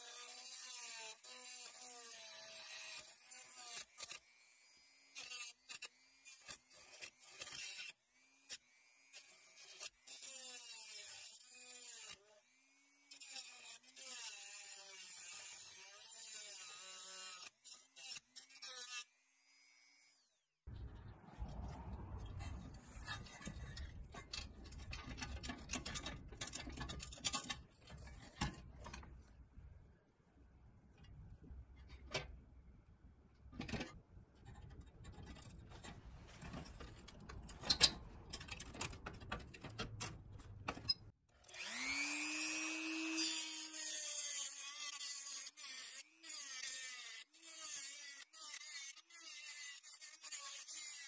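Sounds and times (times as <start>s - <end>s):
rotary tool grinding metal: 0.0s - 29.3s, 33.6s - 51.0s
scraping and rubbing of metal toy: 20.7s - 29.4s, 31.0s - 32.3s, 33.5s - 41.2s.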